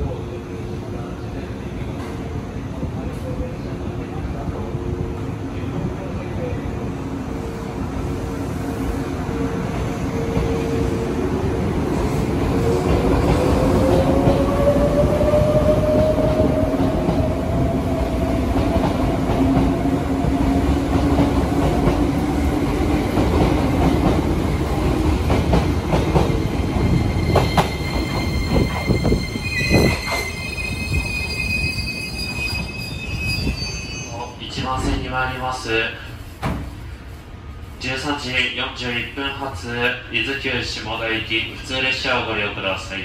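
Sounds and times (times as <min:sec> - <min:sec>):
train rumble: 0:00.0 - 0:32.4
high wheel squeal: 0:26.9 - 0:34.4.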